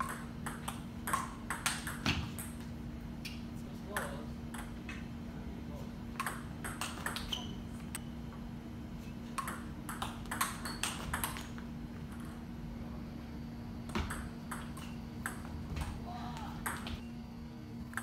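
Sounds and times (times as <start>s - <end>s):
steady low hum: 0.0s - 18.0s
table tennis ball clicking: 9.4s - 11.6s.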